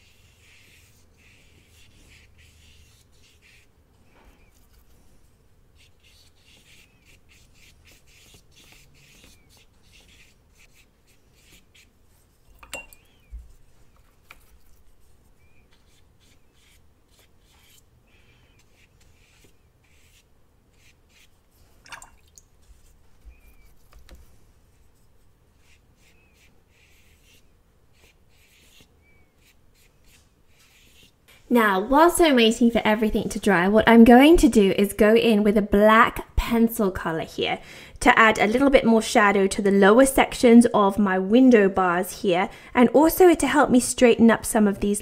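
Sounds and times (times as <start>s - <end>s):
paintbrush strokes on paper: 0.0s - 21.8s, 22.5s - 33.7s.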